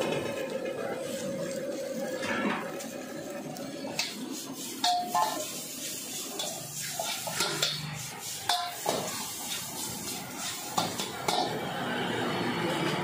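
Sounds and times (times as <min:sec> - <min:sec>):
frying hiss: 0:00.0 - 0:12.9
ladle scraping metal wok: 0:03.7 - 0:11.6.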